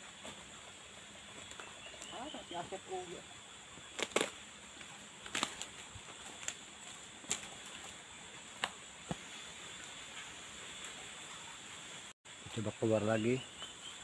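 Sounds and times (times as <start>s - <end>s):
sharp snaps and clicks: 4.0s - 4.4s.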